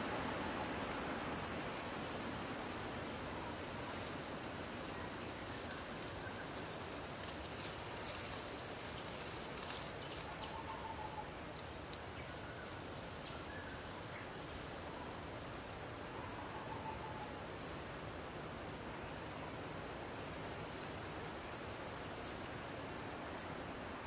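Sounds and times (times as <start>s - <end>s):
insect chorus trilling: 0.0s - 24.0s.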